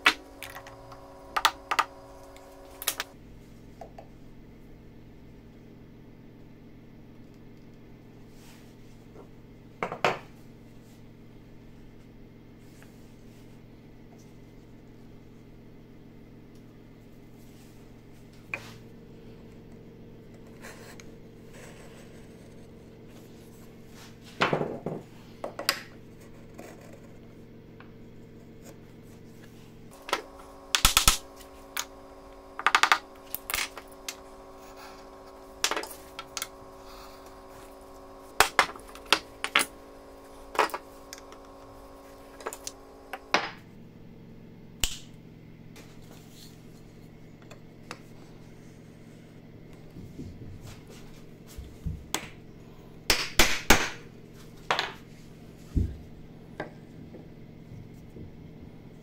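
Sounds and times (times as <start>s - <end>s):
low hum: 0.0s - 53.1s.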